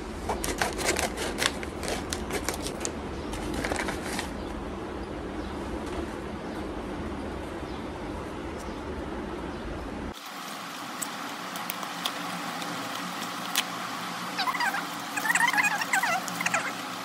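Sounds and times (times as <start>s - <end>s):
paper and plastic packaging crinkling: 0.4s - 4.4s.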